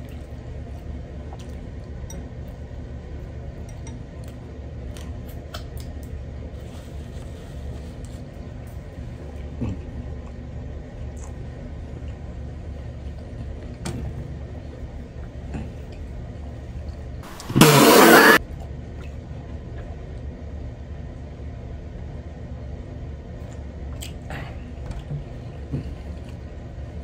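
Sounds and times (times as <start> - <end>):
loud rushing noise: 17.2 - 18.4.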